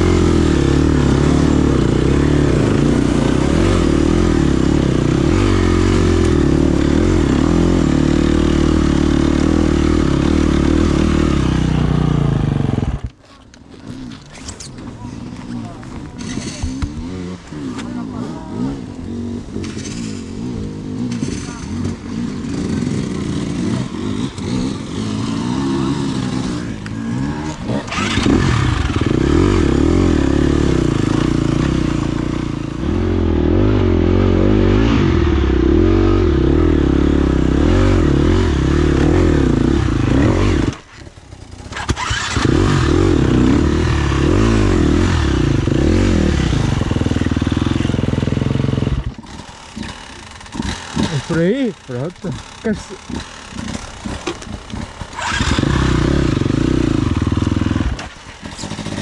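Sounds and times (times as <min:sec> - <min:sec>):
dirt bike engine revving: 0:00.0 - 0:13.2, 0:15.5 - 0:59.0.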